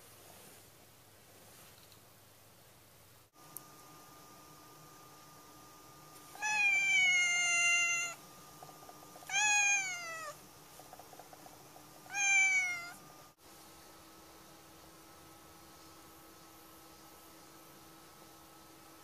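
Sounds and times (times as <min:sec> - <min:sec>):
cat meowing: 0:06.4 - 0:08.2, 0:09.3 - 0:10.4, 0:12.1 - 0:13.0.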